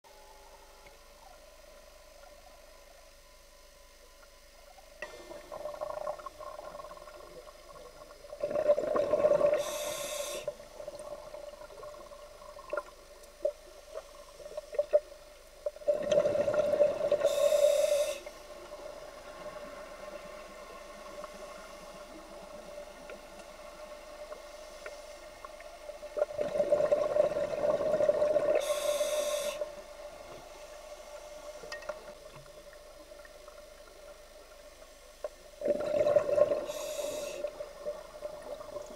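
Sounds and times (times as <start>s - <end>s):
faint steady hum: 0.0s - 38.9s
exhaled bubbles underwater: 5.1s - 9.9s, 10.7s - 20.2s, 26.0s - 29.0s, 35.6s - 38.9s.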